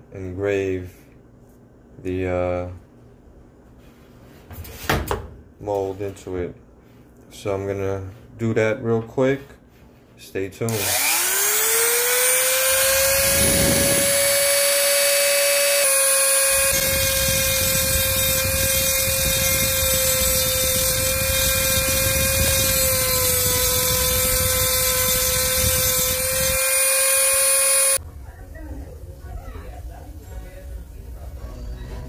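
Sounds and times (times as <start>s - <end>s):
bit grinding into metal: 10.7s - 28.0s
rotary tool whine: 10.7s - 28.0s.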